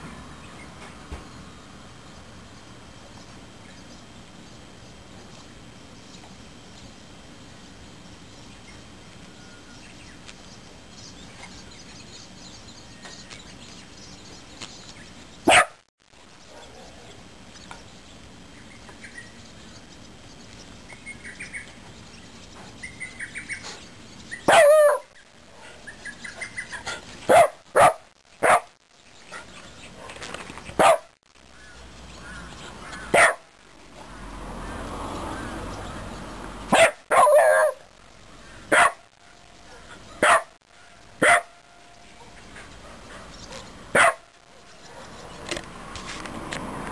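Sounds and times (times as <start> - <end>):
dog barking: 15.5 - 15.8, 16.5 - 17.1, 24.5 - 25.8, 27.3 - 28.8, 30.8 - 31.1, 33.1 - 33.5, 36.7 - 37.8, 38.7 - 39.1, 39.7 - 40.6, 41.2 - 41.6, 42.2 - 45.4.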